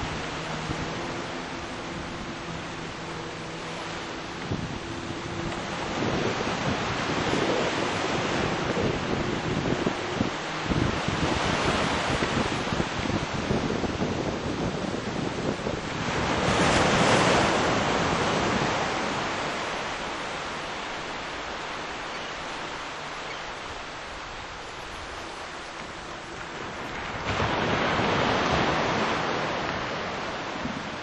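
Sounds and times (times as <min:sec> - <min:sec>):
water noise: 0:00.0 - 0:31.0
wind on microphone: 0:00.0 - 0:31.0.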